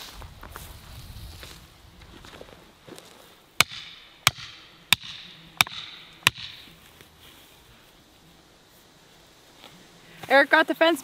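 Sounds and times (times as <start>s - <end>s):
hammer striking metal rod: 3.6s - 6.6s.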